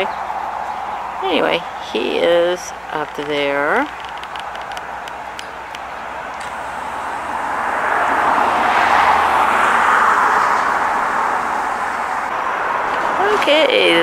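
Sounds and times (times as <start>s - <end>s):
car driving past: 5.8s - 13.7s.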